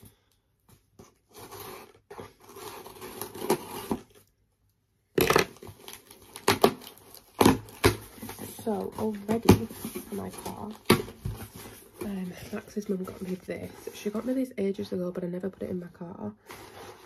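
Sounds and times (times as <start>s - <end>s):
packaging tearing and crinkling: 1.2s - 4.3s, 5.2s - 11.2s.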